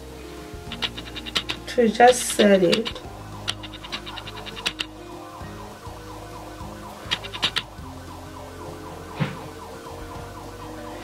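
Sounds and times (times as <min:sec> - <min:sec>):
steady held tones: 0:00.0 - 0:11.0
makeup tools tapping palette: 0:00.7 - 0:04.9, 0:07.1 - 0:07.7.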